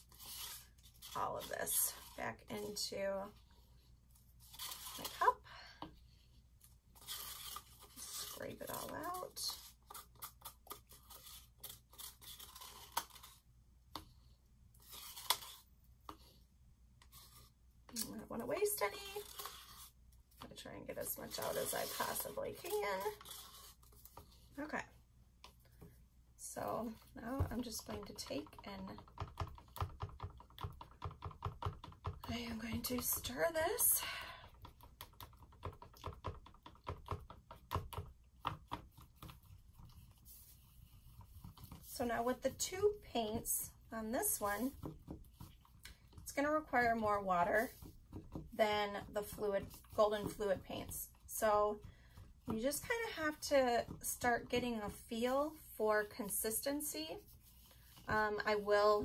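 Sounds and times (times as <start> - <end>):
stick scraping paint in cup: 0.0 - 5.2, 7.0 - 13.4, 14.8 - 16.4, 17.0 - 24.5, 34.5 - 55.3.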